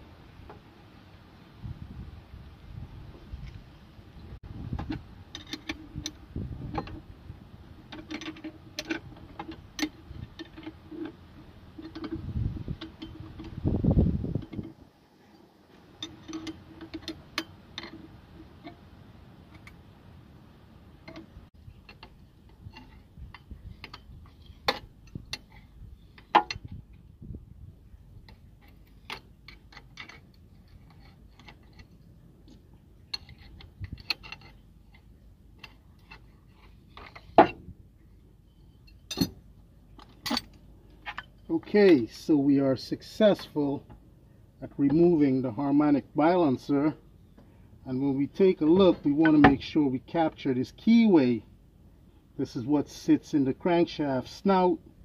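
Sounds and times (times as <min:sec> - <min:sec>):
wrenches clicking on metal bolt: 0:07.9 - 0:11.2, 0:16.0 - 0:18.8, 0:28.3 - 0:32.0, 0:33.1 - 0:37.6, 0:38.9 - 0:39.4.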